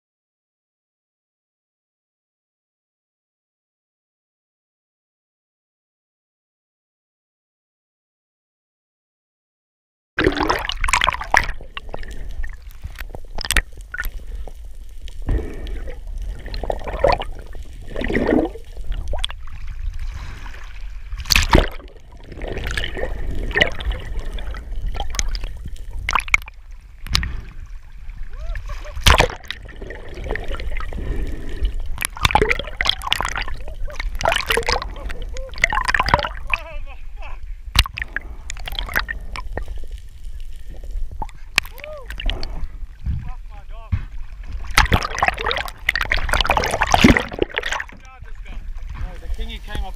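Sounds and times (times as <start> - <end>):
muffled moving water gurgling: 10.2 - 49.9.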